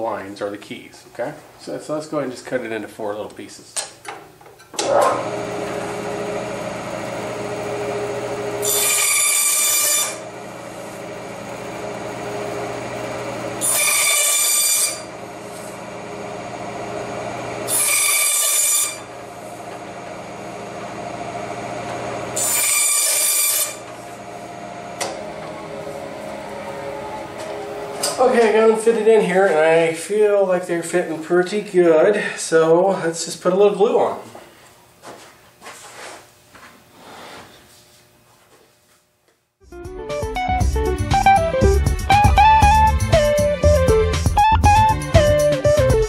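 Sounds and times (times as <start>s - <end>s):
bandsaw cutting wood: 4.8s - 28.9s
bandsaw motor humming: 4.8s - 30.4s.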